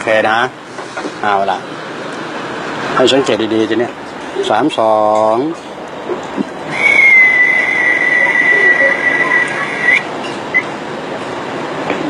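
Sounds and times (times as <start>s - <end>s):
high whistle-like ringing tone: 6.7s - 10.1s.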